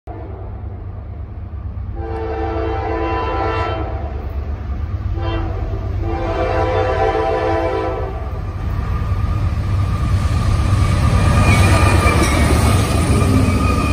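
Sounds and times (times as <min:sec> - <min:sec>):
train rumble: 0:00.1 - 0:13.9
train air horn chord: 0:02.0 - 0:04.2, 0:05.2 - 0:08.2.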